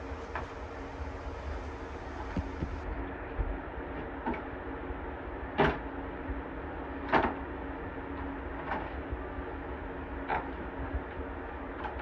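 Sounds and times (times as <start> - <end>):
window fan humming: 0.0 - 8.0
knocking on wood: 2.3 - 2.8.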